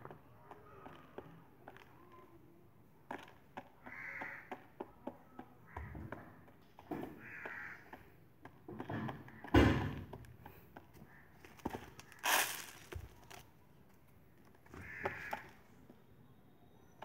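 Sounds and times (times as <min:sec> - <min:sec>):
harsh caw-like bird calls: 0:03.7 - 0:04.8, 0:05.4 - 0:06.5, 0:07.1 - 0:08.1, 0:09.1 - 0:09.8, 0:10.8 - 0:12.9, 0:14.6 - 0:15.7
thump: 0:08.9 - 0:10.2.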